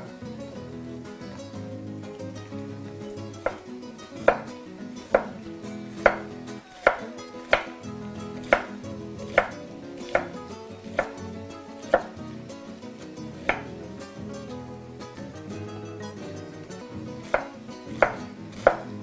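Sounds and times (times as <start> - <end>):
knife chopping on wooden board: 4.3 - 4.5, 5.2 - 5.4, 6.0 - 7.7, 8.4 - 8.7, 9.3 - 10.4, 11.9 - 12.1, 13.5 - 13.7, 17.3 - 18.9.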